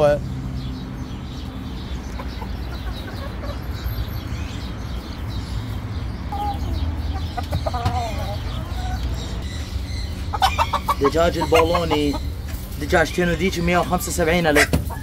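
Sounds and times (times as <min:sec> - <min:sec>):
chickens clucking: 0:01.0 - 0:15.0
chicken wavering call: 0:10.3 - 0:12.4.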